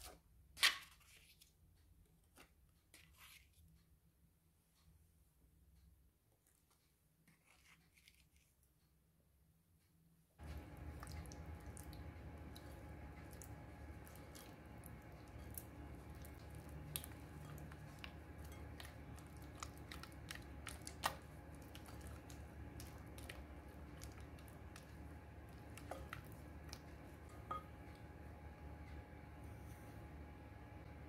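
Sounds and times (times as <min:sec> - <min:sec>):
spatula squelching cream cheese: 0:07.3 - 0:08.6, 0:10.4 - 0:30.1.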